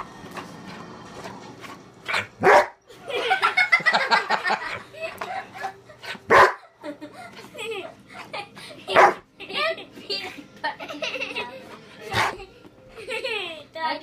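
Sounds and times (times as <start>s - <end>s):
dog barking: 2.1s - 2.8s, 6.3s - 6.6s, 9.0s - 9.2s.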